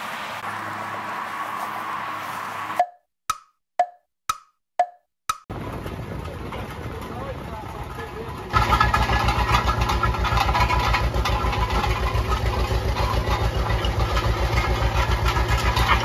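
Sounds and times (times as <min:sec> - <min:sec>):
two-cylinder engine running: 0:05.5 - 0:16.0.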